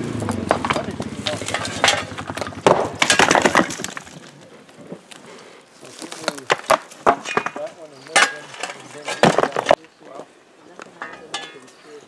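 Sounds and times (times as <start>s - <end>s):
rocks knocking together: 0.1s - 5.2s, 5.9s - 9.8s.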